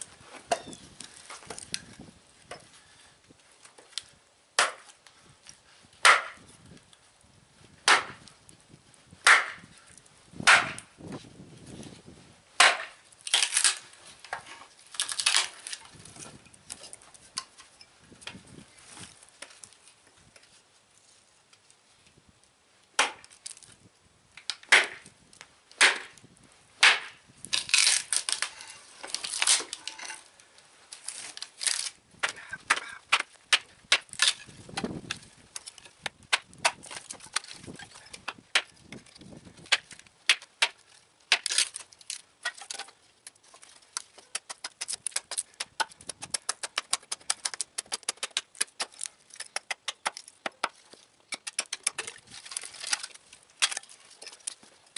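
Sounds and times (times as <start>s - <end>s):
hatchet chopping wood: 4.6s - 5.0s, 6.0s - 6.4s, 7.8s - 8.3s, 9.2s - 9.7s, 10.4s - 10.9s, 12.6s - 13.7s, 23.0s - 23.3s, 24.5s - 25.1s, 25.8s - 26.2s, 26.8s - 27.2s, 32.2s - 38.8s, 39.7s - 41.7s, 44.2s - 53.9s
wood cracking apart: 12.6s - 18.4s, 23.0s - 23.8s, 25.7s - 54.9s.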